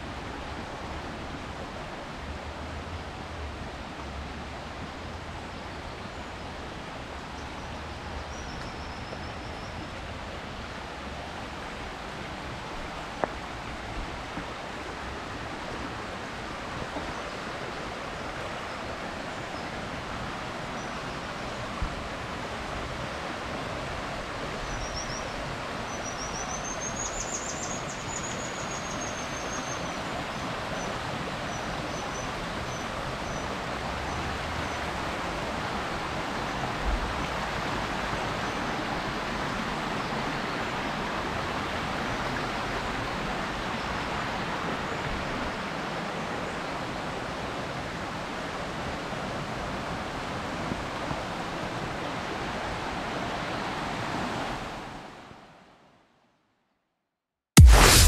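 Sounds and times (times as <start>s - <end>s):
low thumps: 57.6s - 58.0s.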